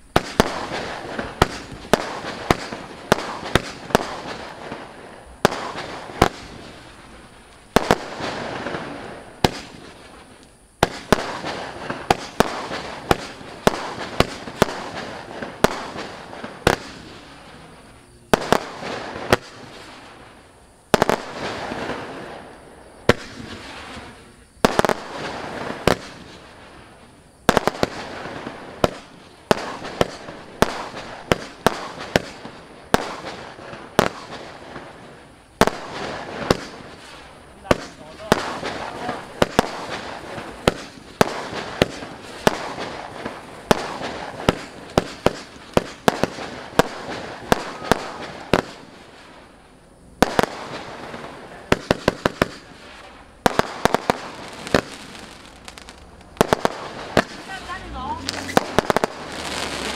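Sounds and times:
firework shots: 0.0 - 59.9
firework stars crackling: 0.0 - 59.9.

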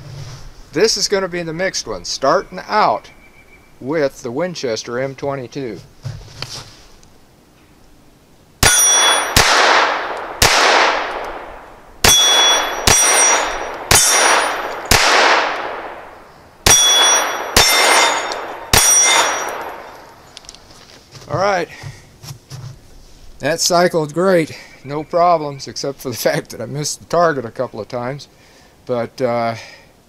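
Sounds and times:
pistol shots with echo: 8.6 - 20.0
steel gong ringing: 16.7 - 19.9.

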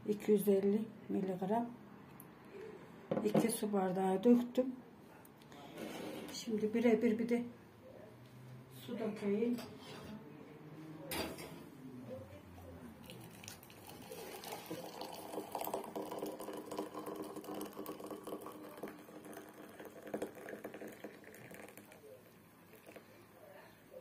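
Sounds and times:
water pouring: 13.0 - 22.0.

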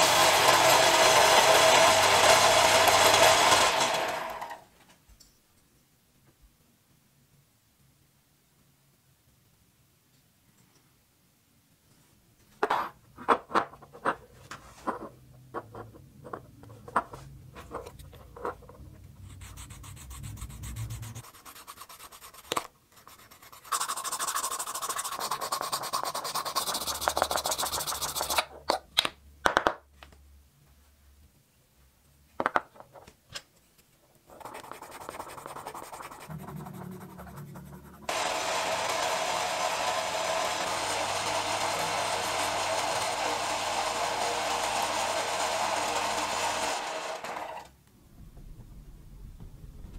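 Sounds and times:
buffing wheel running: 38.1 - 47.2.

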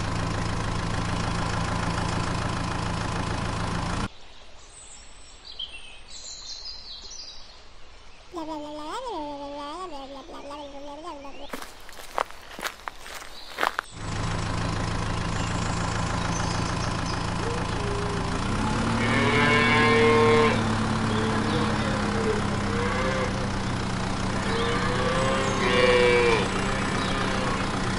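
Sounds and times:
engine idling: 0.0 - 4.1, 11.5 - 27.9
cattle mooing: 17.6 - 23.6, 24.3 - 27.9.

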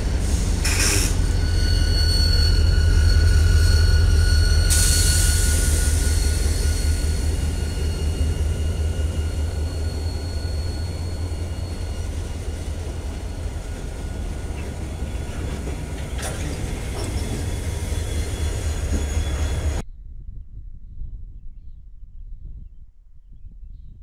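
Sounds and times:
locomotive engines rumbling: 0.0 - 19.8
steady high-pitched tone: 1.2 - 15.9.

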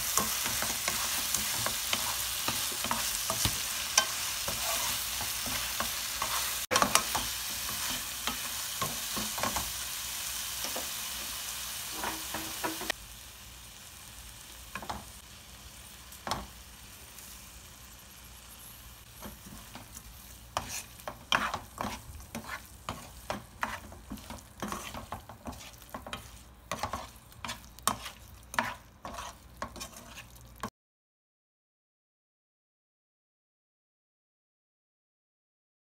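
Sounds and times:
spatula scraping pan: 0.0 - 13.0, 19.0 - 30.7
food sizzling in frying pan: 0.0 - 30.7.

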